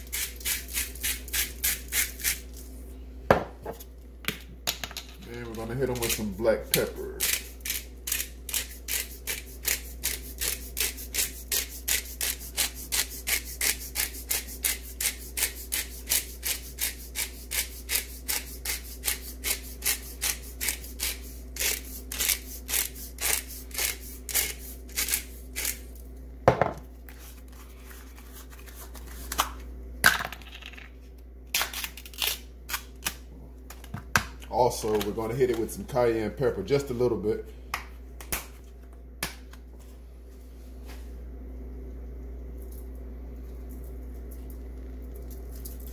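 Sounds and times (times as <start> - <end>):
pepper mill grinding: 0.0 - 2.6, 5.3 - 26.0.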